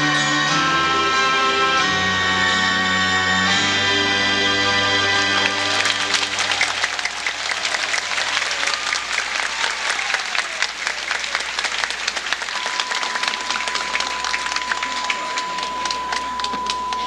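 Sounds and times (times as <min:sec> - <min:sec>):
song: 0:00.0 - 0:07.5, 0:12.5 - 0:17.0
audience applauding: 0:04.7 - 0:17.0.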